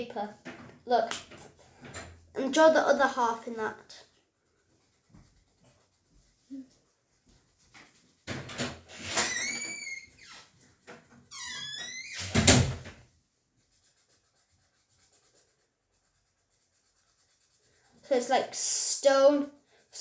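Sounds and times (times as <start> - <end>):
high squeaky creaks: 8.9 - 12.6.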